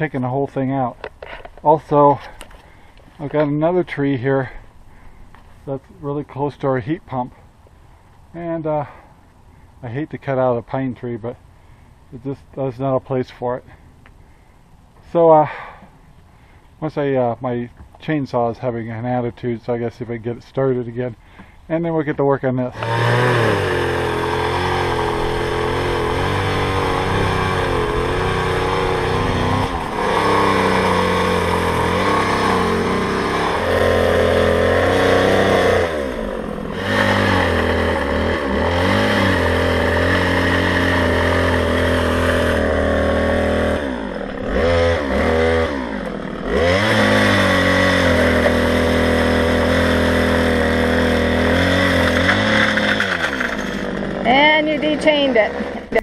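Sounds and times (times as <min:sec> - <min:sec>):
chainsaw cutting branches: 0:22.7 - 0:56.0.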